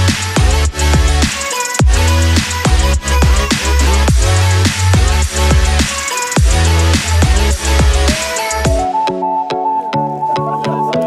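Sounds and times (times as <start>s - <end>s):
electronic music with heavy bass: 0.0s - 11.0s.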